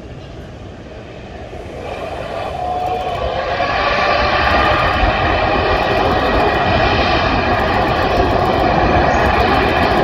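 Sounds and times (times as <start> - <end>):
high jet engine whine: 0.0 - 10.0
jet engines at takeoff power: 0.0 - 10.0.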